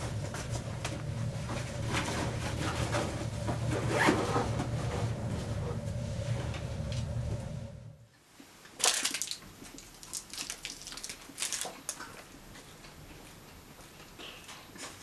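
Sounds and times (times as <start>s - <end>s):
clothing rustling and scraping: 0.0s - 7.2s
steady low hum: 0.0s - 8.1s.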